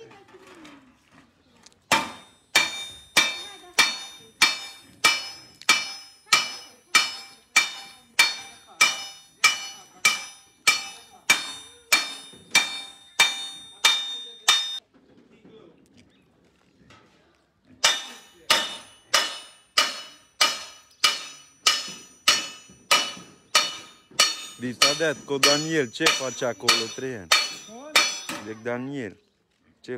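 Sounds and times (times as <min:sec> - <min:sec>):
hammer beating copper sheet: 0:01.9 - 0:14.8, 0:17.8 - 0:28.7.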